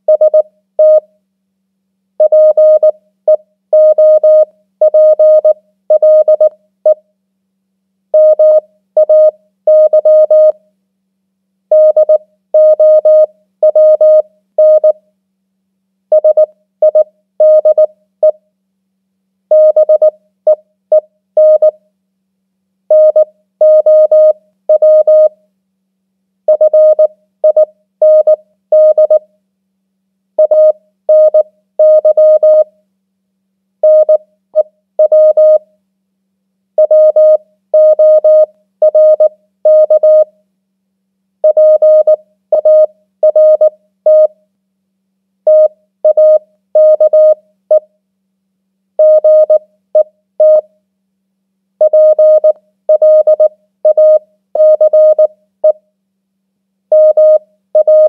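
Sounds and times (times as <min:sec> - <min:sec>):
morse code beeps: 0:26.5 - 0:29.2, 0:30.4 - 0:32.6, 0:36.8 - 0:40.2, 0:41.5 - 0:44.3, 0:45.5 - 0:47.4, 0:49.0 - 0:49.6, 0:50.4 - 0:50.6, 0:51.8 - 0:55.3, 0:57.0 - 0:58.0.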